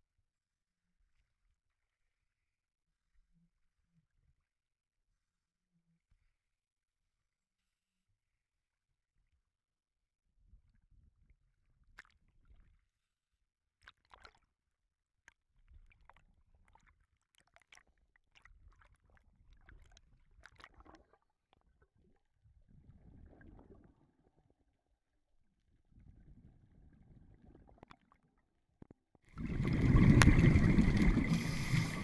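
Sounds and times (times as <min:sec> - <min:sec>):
muffled water sloshing: 0:15.6 - 0:24.5, 0:29.3 - 0:32.0
crackles and clicks: 0:28.8 - 0:32.0.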